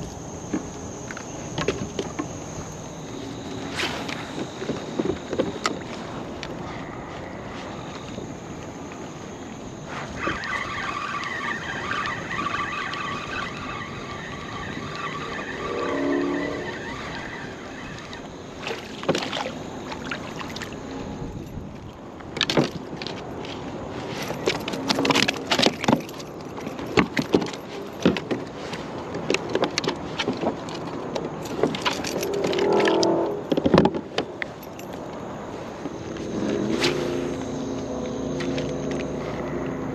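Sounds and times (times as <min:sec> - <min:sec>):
fish clicking and knocking in kayak: 0:00.0 - 0:02.8, 0:16.9 - 0:36.3
fishing reel whirring: 0:10.0 - 0:18.6.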